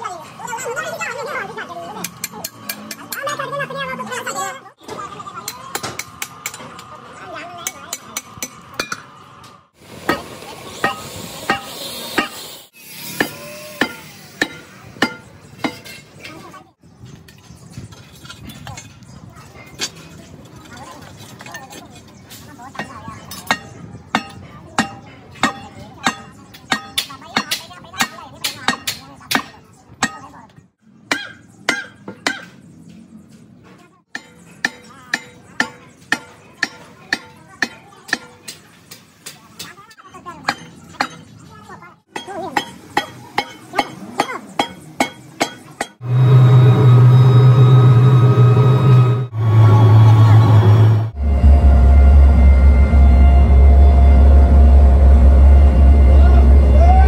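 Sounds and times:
hammer striking metal: 7.6s - 9.1s, 10.1s - 16.1s, 22.8s - 30.3s, 34.1s - 39.8s, 42.1s - 57.0s
hammer blows on metal: 10.8s - 16.0s.

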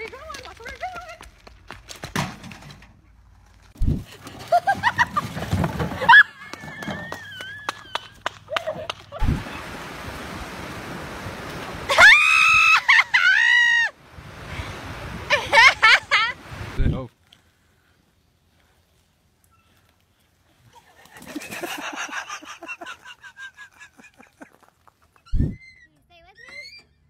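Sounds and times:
surf washing on beach: 9.2s - 13.1s, 14.0s - 16.9s
people exclaiming: 11.9s - 13.9s
woman screaming: 11.9s - 13.9s.

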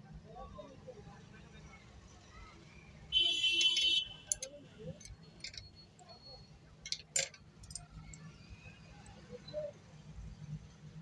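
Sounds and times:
small metal clicks: 3.6s - 5.8s, 6.8s - 8.3s.

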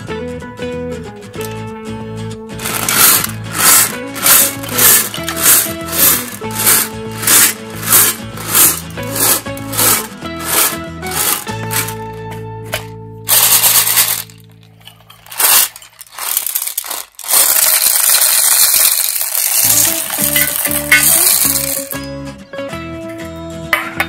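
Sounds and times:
background music: 0.0s - 24.0s
candy pouring onto plastic: 2.6s - 12.1s, 13.3s - 14.4s, 15.2s - 22.0s.

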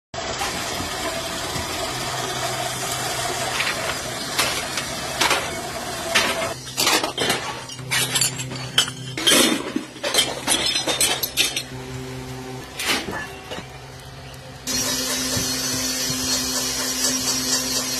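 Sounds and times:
forge fire rushing and humming: 0.2s - 17.9s
coal and metal clinking: 0.9s - 12.0s, 12.6s - 15.0s.

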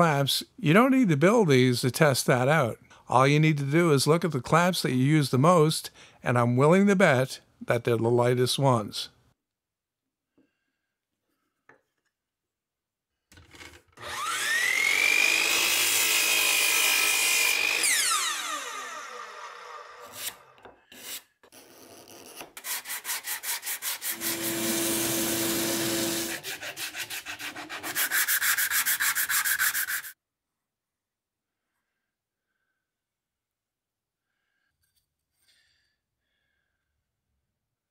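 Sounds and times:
card scraper scraping wood: 20.0s - 30.1s.

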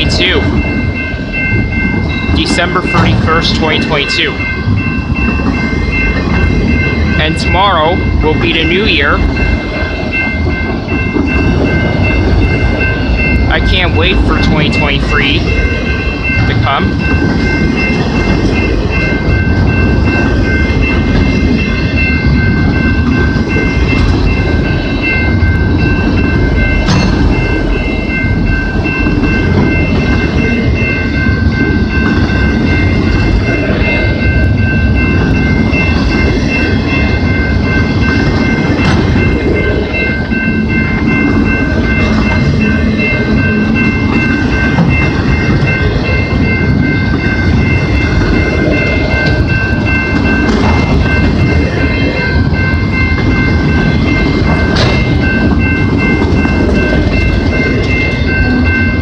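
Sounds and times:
freight train rumbling past: 0.0s - 59.0s
steady high-pitched ringing tone: 0.0s - 59.0s.

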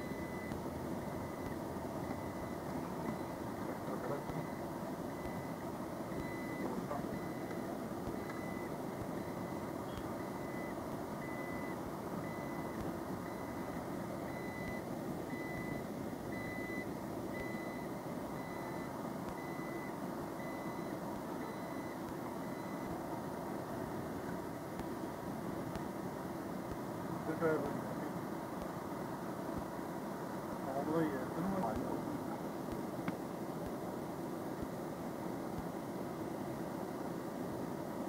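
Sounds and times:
reversing alarm beeping: 0.0s - 23.0s
traffic: 0.0s - 38.0s.

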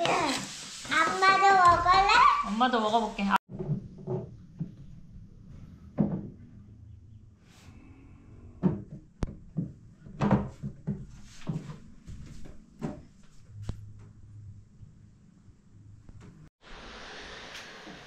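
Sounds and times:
wooden knocks and bumps: 3.5s - 5.0s, 6.0s - 6.4s, 8.6s - 13.2s.

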